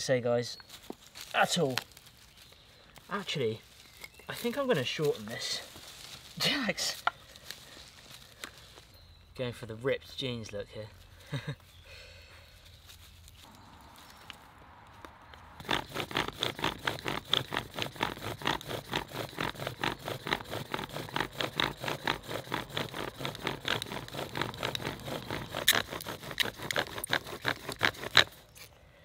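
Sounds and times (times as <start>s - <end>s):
bow drill spindle squeaking: 15.6s - 28.4s.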